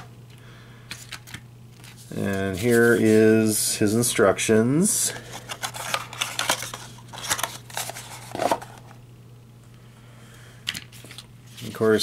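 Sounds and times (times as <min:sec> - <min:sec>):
cardboard packaging handled: 0:05.2 - 0:08.9.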